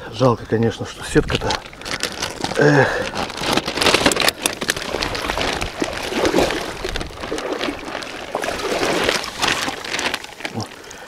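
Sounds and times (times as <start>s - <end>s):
seawater sloshing and splashing: 3.1s - 11.0s.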